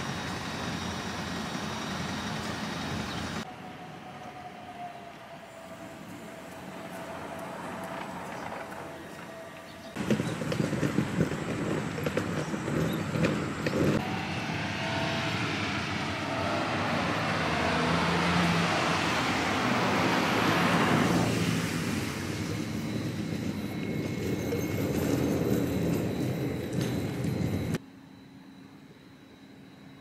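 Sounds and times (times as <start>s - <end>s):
car passing close by: 14.0s - 23.1s.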